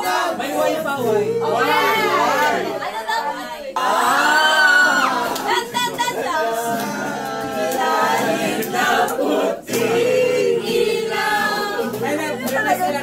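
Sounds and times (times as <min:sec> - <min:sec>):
voices singing together: 0:00.0 - 0:13.0.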